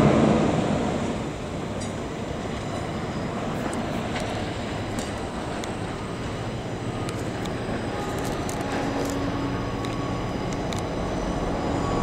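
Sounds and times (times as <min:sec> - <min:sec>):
train rumbling on tracks: 0:00.0 - 0:12.0.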